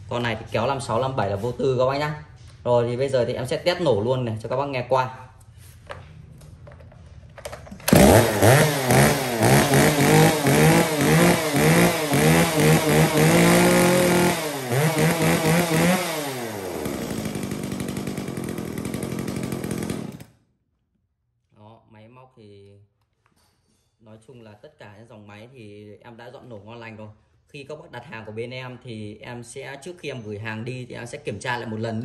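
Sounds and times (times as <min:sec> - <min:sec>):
chainsaw revving and idling: 0:07.9 - 0:20.3.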